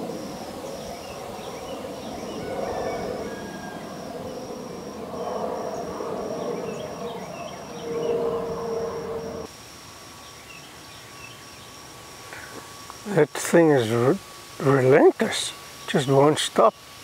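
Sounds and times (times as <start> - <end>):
faint chirps: 0.0 - 9.5
high pulsing buzz: 0.0 - 17.0
low steady hum: 0.0 - 17.0
quiet hiss: 8.3 - 17.0.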